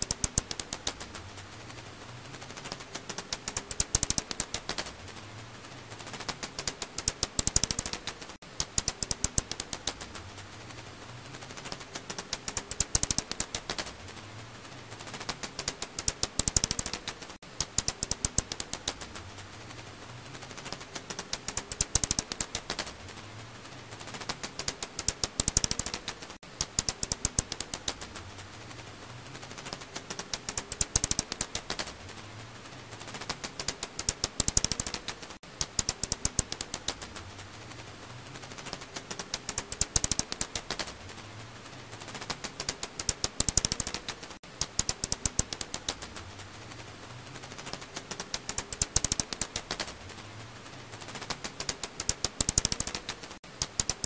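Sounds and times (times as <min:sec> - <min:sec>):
bat echolocation clicks: 0:00.0 - 0:01.2, 0:02.6 - 0:04.9, 0:06.1 - 0:10.2, 0:11.6 - 0:14.0, 0:15.1 - 0:19.2, 0:20.6 - 0:23.0, 0:24.1 - 0:28.2, 0:29.6 - 0:32.0, 0:33.1 - 0:37.2, 0:38.6 - 0:41.0, 0:42.1 - 0:46.2, 0:47.6 - 0:50.0, 0:51.0 - 0:54.0.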